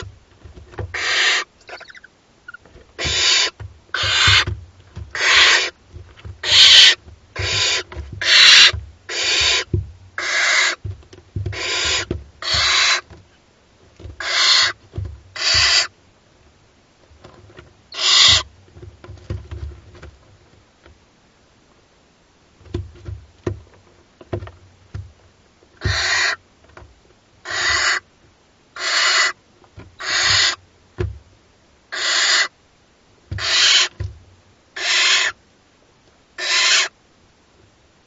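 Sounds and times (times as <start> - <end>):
scratching and shuffling on shavings: 0.0 - 13.1, 14.1 - 15.9
owl chicks hissing begging calls: 0.9 - 4.5, 5.1 - 5.8, 6.4 - 10.8, 11.5 - 13.0, 14.2 - 14.8, 15.4 - 15.9, 17.9 - 18.5, 25.8 - 26.4, 27.4 - 28.0, 28.8 - 29.4, 30.0 - 30.6, 31.9 - 32.6, 33.4 - 34.0, 34.8 - 35.4, 36.4 - 37.0.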